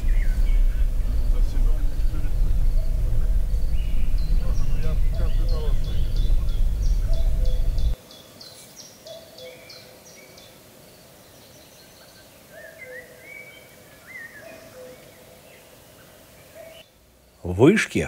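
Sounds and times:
low two-note bird call: 0.0 - 8.0
whistled bird phrases: 0.0 - 8.0.

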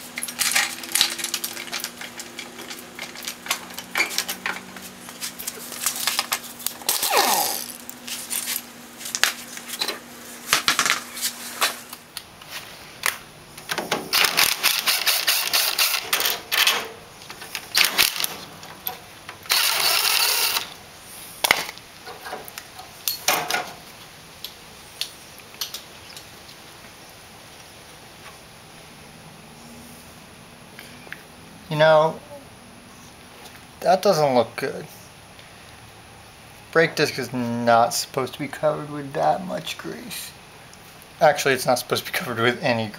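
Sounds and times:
metal parts clanking: 0.1 - 4.8, 13.7 - 20.7
cordless power driver running: 14.1 - 16.4, 19.4 - 20.8.

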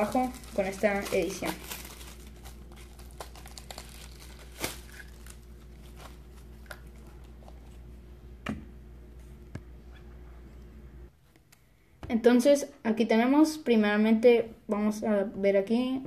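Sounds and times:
packaging crinkling and rustling: 0.0 - 7.8.

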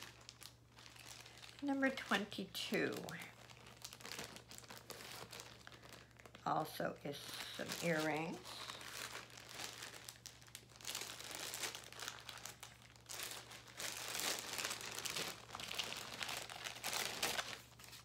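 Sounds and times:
packaging crinkling and rustling: 0.0 - 18.0.

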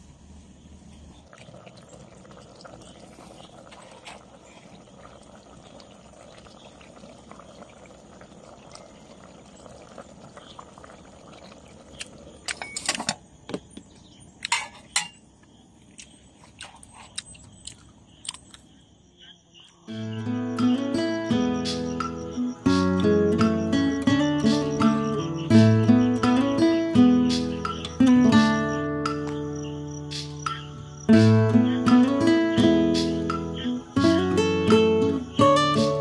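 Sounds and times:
stew bubbling in a pot: 0.8 - 14.2
metal pot and lid clanking: 12.5 - 13.2, 14.4 - 15.2.

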